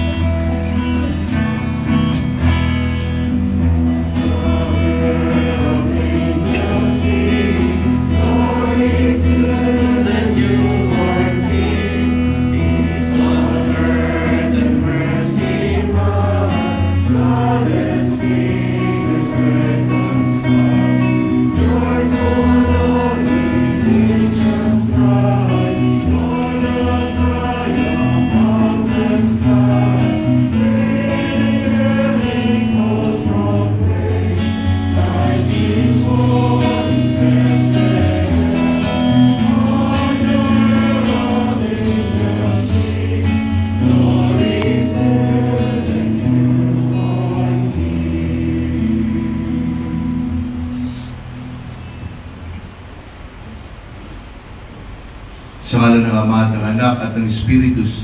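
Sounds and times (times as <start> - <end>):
guitar accompaniment: 0.0 - 58.0
choir singing a hymn: 2.4 - 51.0.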